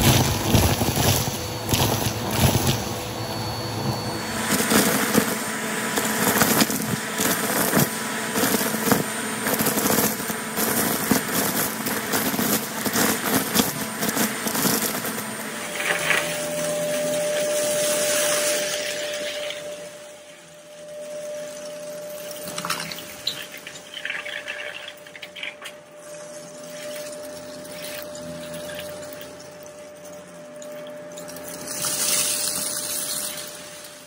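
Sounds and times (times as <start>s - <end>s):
pasta rattling up vacuum hose: 0.0s - 3.1s, 3.8s - 19.5s.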